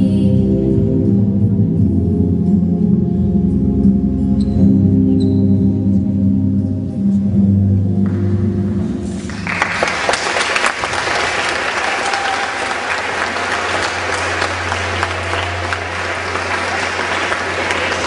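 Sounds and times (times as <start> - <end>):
audience clapping: 9.2 - 18.0.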